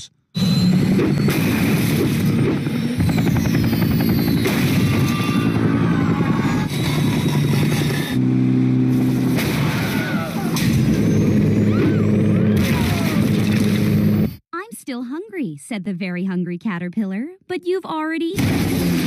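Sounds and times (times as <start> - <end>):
cartoon helicopter rotor chopping: 0.4 - 14.2.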